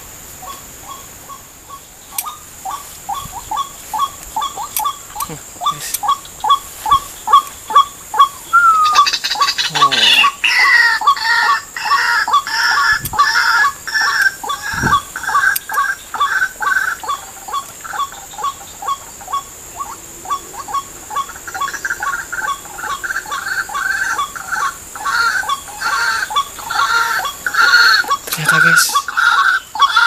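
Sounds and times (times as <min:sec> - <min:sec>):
bird calling repeated short notes: 0:00.4 - 0:19.5.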